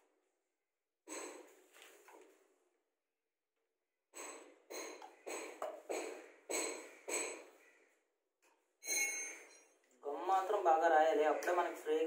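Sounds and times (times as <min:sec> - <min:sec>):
sharp knocks on plastic pipe fittings: 0:04.1 - 0:07.6.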